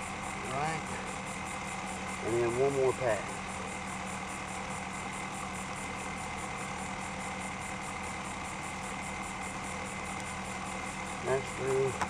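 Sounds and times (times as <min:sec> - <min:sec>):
steady hum with high whine: 0:00.0 - 0:12.0.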